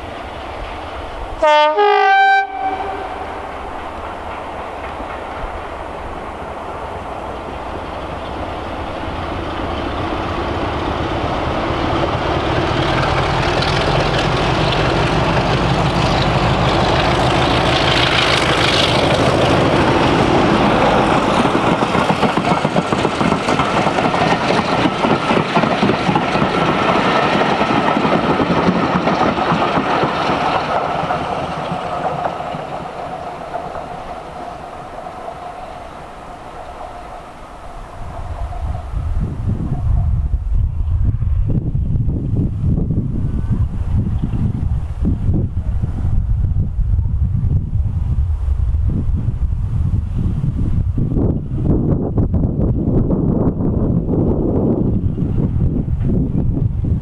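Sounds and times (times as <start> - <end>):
diesel locomotive engine passing: 0.0 - 57.0
train wheels clattering on rails: 2.6 - 37.3.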